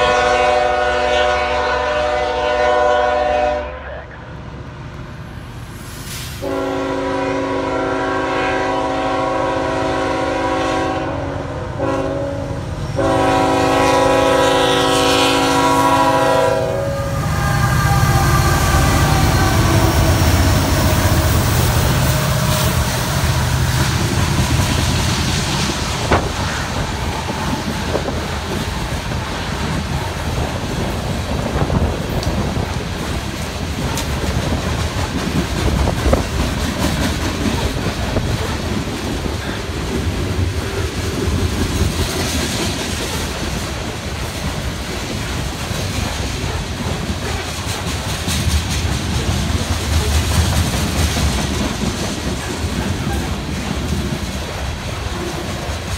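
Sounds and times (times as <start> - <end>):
train air horn blasts: 0.0 - 4.1, 6.4 - 24.7
freight train rumbling past: 0.0 - 55.9
wheels clattering on rails: 22.6 - 55.9.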